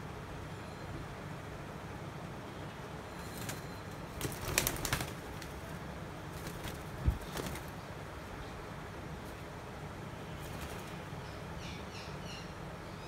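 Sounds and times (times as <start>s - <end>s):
parakeet flapping wings: 3.2s - 7.9s, 10.3s - 11.0s.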